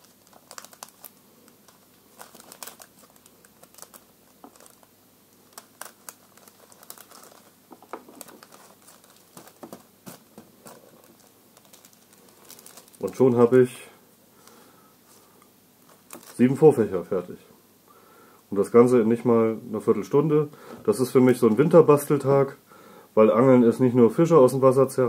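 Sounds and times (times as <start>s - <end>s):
fishing line crinkling: 0.0s - 13.4s, 14.4s - 16.5s.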